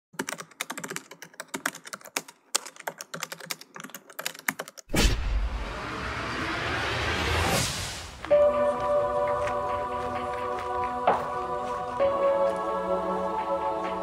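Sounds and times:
keyboard typing: 0.1 - 4.9
rushing noise with low rumble: 5.0 - 8.3.

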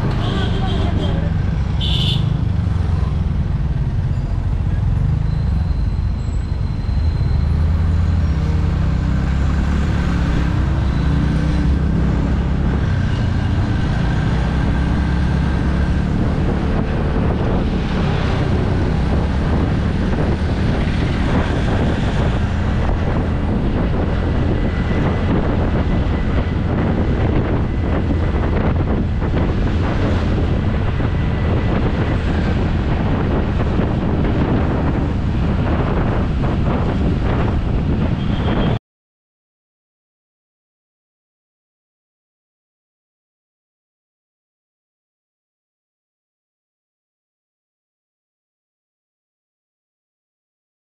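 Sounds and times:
traffic engines: 0.0 - 38.8
wind on microphone: 7.7 - 38.8.

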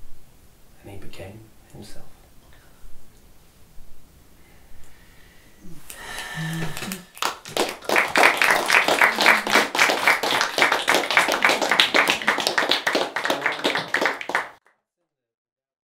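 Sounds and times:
audience applauding: 5.9 - 14.6.

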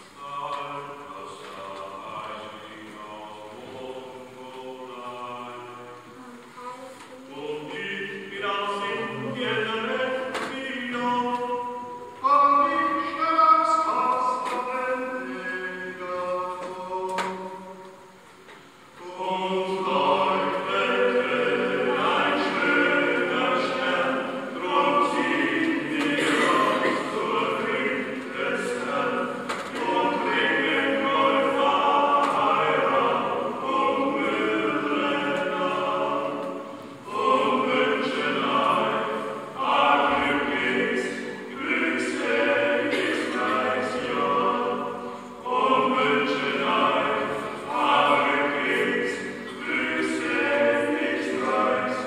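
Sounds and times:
group singing a carol: 0.0 - 52.0.

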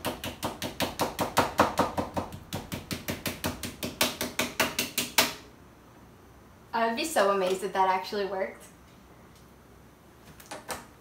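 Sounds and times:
knife chopping on cutting board: 0.0 - 5.4.

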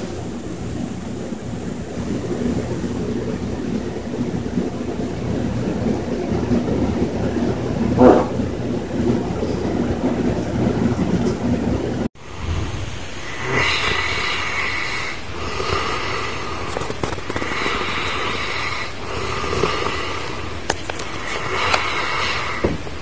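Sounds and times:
low rumbling noise: 0.0 - 23.0.

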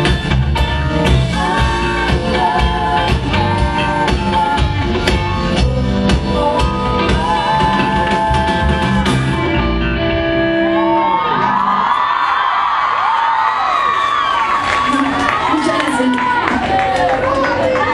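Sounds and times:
live band with singing: 0.0 - 17.9
audience screaming and cheering: 7.8 - 17.9.

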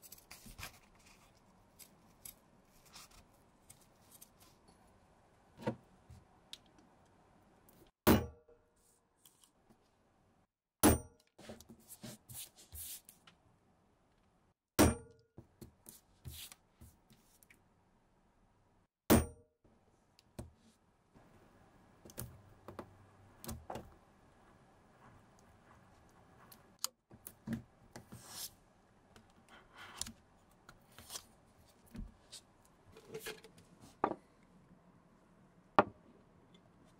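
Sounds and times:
hammer striking metal punch: 10.8 - 11.2, 14.8 - 15.1, 19.1 - 19.4.

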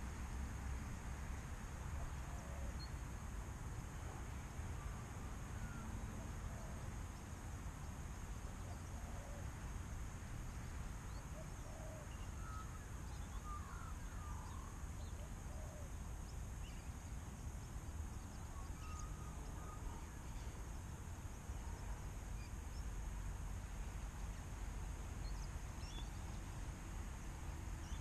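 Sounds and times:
faint high whine: 10.6 - 27.0
bird calls and chirps: 11.1 - 15.9, 18.1 - 20.6, 25.2 - 26.3, 27.8 - 28.0.

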